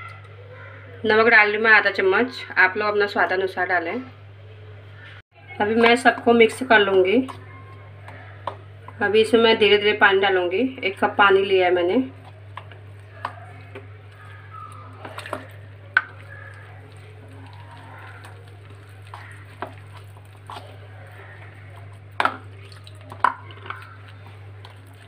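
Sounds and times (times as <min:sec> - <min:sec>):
spoon stirring wet batter: 0:05.4 - 0:25.0.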